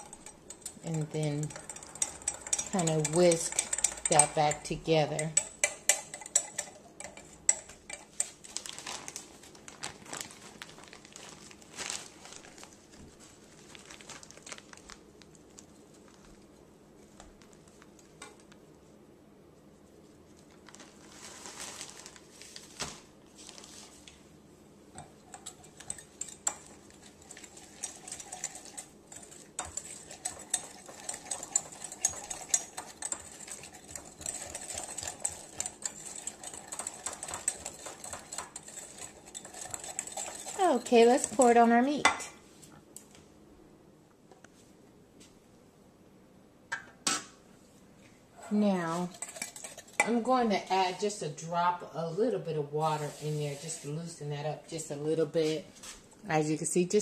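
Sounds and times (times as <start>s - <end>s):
whisk clicking against glass bowl: 0.0s - 8.4s, 25.0s - 41.5s.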